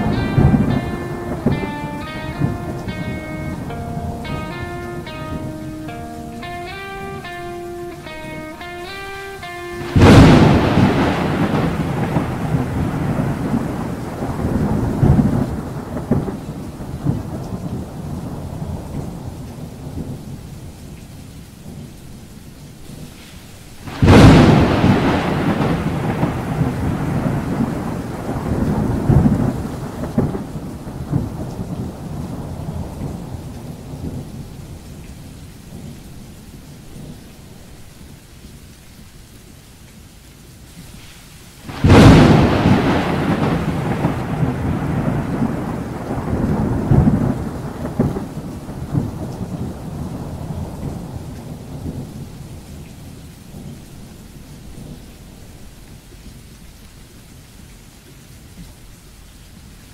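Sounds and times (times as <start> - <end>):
loud thunderclap: 0.0 - 6.0, 9.8 - 20.2, 23.9 - 34.3, 41.7 - 52.1
rolling thunder: 0.0 - 7.4, 9.8 - 20.3, 23.9 - 34.8, 41.7 - 52.6
rain hitting a car: 0.0 - 59.9.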